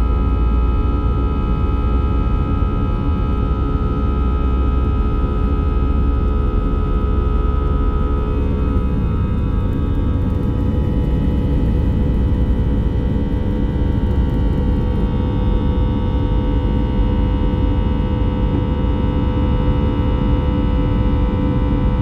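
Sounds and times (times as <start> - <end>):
jet engines roaring: 4.0 - 16.4.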